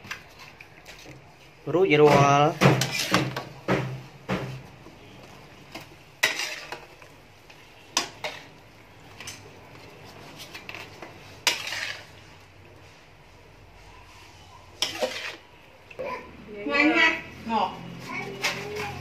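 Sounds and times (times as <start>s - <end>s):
metal spatula scraping wok: 2.0s - 15.7s, 17.8s - 19.0s.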